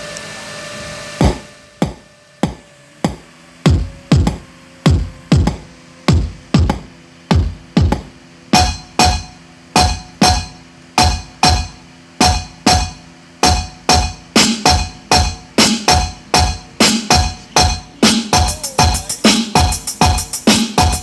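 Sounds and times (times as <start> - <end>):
deep booming kick drum: 1.2 - 21.0
electronic music through car speakers: 1.2 - 21.0
bright ringing hit: 8.6 - 19.1.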